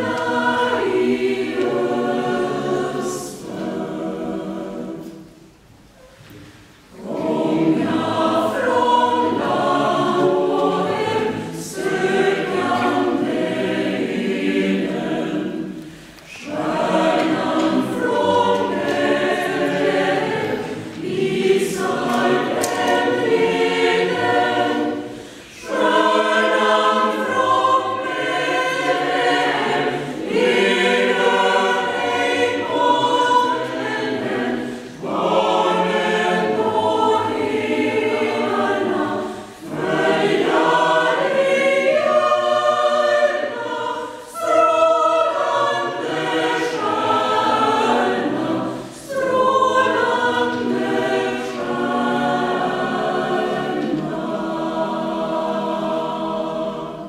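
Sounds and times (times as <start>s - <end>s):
mixed choir singing: 0.0s - 57.0s.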